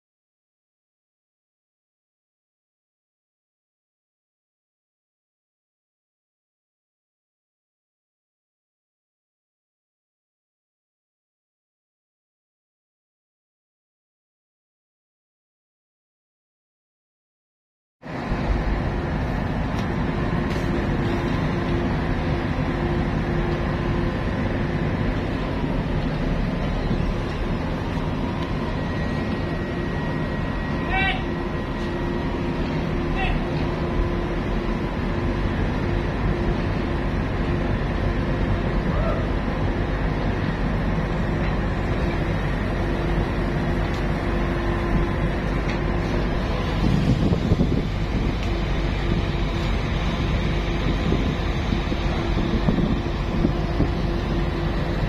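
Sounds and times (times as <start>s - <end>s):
ship engines rumbling: 18.0s - 55.0s
faint constant hum: 18.1s - 55.0s.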